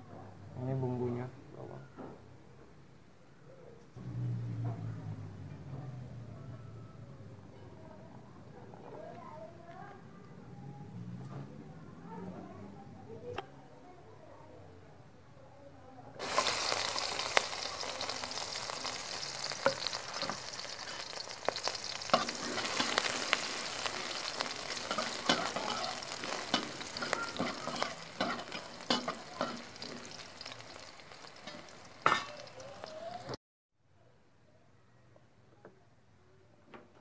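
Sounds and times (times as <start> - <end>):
spatula scraping pan: 16.2 - 30.6
food sizzling in hot oil: 16.2 - 33.4.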